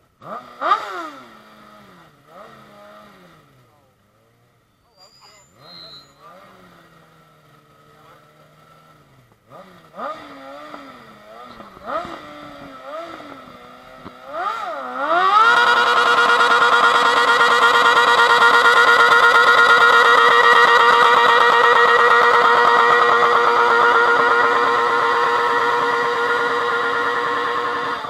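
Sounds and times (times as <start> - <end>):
lawn tractor engine revving: 0.2 - 3.5, 9.5 - 28.0.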